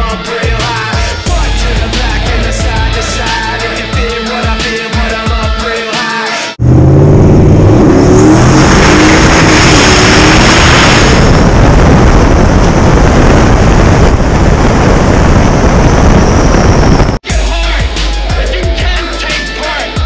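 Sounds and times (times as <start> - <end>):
truck engine accelerating: 0.8 - 4.6, 6.6 - 17.2
wind on microphone: 8.4 - 17.2.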